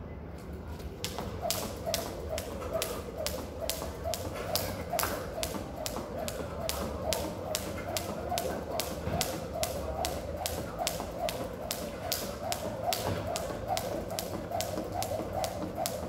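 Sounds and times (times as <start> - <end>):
jump rope slapping concrete: 1.0 - 16.0.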